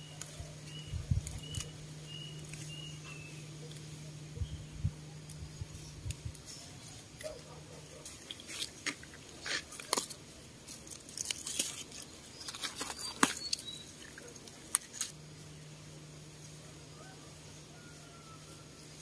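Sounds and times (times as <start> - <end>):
stems snapping by hand: 0.0 - 4.0, 5.2 - 15.2
leaves rustling: 0.0 - 19.0.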